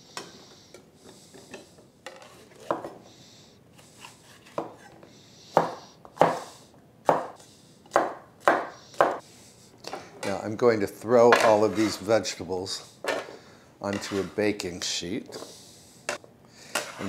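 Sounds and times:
soft scrapes and handling sounds: 1.0s - 2.9s, 3.7s - 5.0s, 11.5s - 12.5s, 13.9s - 14.5s
knife chopping on wooden board: 5.5s - 9.2s.

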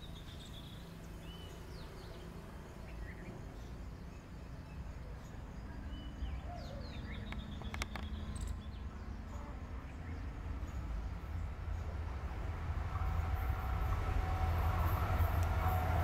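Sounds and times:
birds chirping and calling: 5.9s - 10.3s
sharp clicks: 7.3s - 8.5s.

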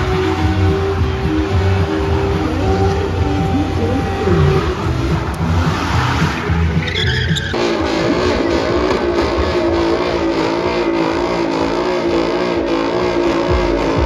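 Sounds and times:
car engines revving high: 0.0s - 14.0s
tyres squealing: 0.0s - 14.0s.

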